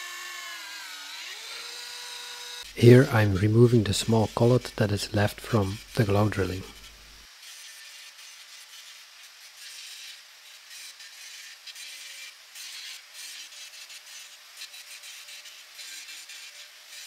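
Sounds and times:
motor whine: 0:00.0 - 0:07.2
angle grinder grinding steel: 0:00.0 - 0:17.0.

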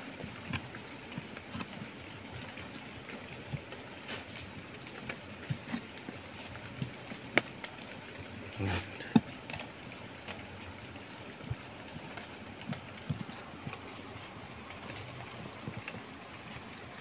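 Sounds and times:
soil scraped by hand: 0:00.2 - 0:07.4.

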